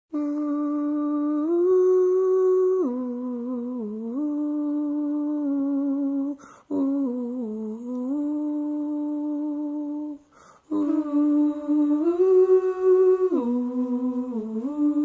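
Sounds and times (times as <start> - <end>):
person humming slow tune: 0.1 - 15.0
person breathing: 6.4 - 6.7, 10.2 - 10.7.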